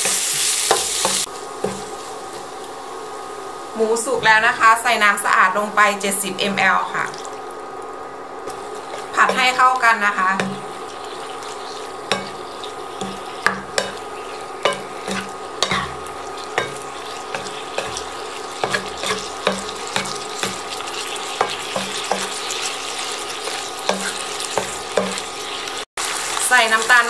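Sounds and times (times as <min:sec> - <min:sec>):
steady sizzle: 0:00.0 - 0:27.0
wooden spatula scraping frying pan: 0:08.5 - 0:09.6, 0:10.4 - 0:25.7.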